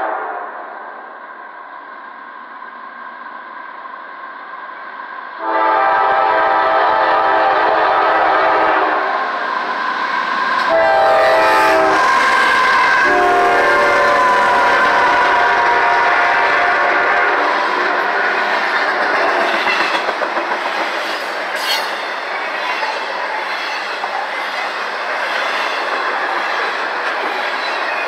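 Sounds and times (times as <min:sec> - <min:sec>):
train rail noise: 0:00.0 - 0:28.0
locomotive air horn blasts: 0:05.4 - 0:09.0, 0:10.7 - 0:17.6.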